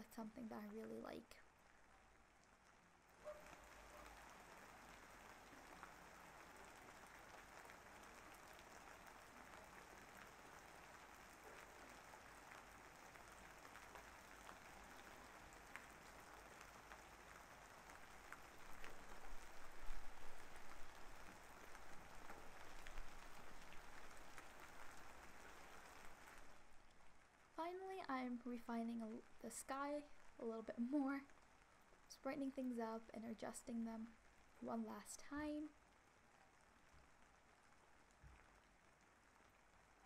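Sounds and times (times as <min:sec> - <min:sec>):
steady rain falling: 0:00.0 - 0:40.0.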